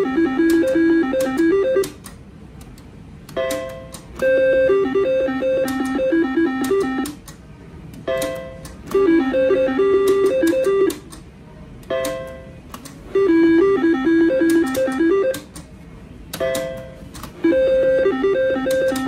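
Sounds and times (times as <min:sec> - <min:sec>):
slot machine tone: 0:00.0 - 0:02.0, 0:03.4 - 0:07.2, 0:08.1 - 0:11.0, 0:11.9 - 0:15.5, 0:16.4 - 0:19.0.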